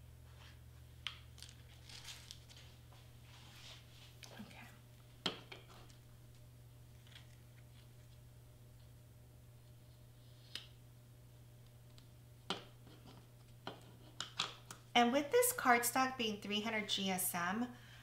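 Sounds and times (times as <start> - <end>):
faint steady low hum: 0.0 - 18.0.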